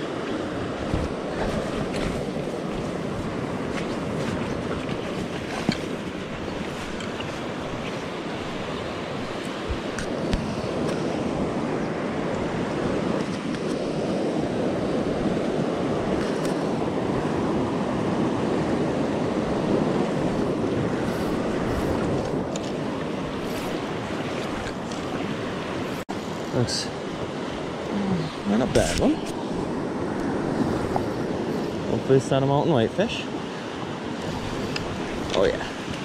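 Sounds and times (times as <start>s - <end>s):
river rushing: 0.0s - 36.0s.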